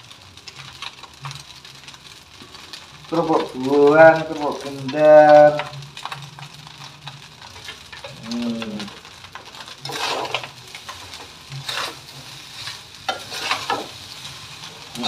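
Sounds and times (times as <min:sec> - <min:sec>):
faint sizzle: 0:00.0 - 0:15.0
metal spatula scraping wok: 0:09.4 - 0:15.0.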